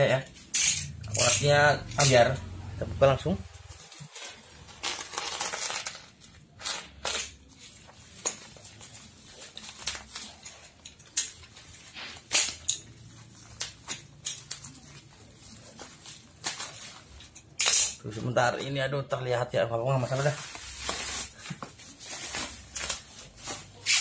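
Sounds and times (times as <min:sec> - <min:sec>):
packing tape and bubble wrap crackling: 0:03.4 - 0:18.4, 0:20.0 - 0:24.0.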